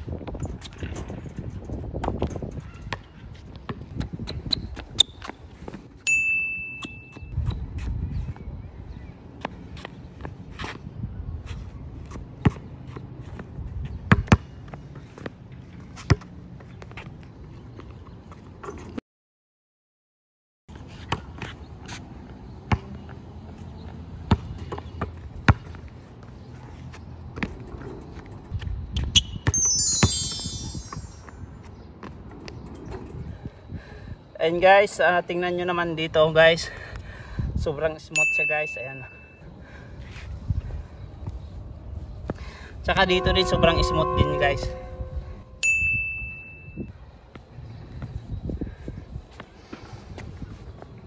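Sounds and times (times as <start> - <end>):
basketball bouncing: 14.1 - 14.5
basketball bouncing on court: 14.1 - 14.6, 24.3 - 25.8
high steady squeal: 42.8 - 46.8.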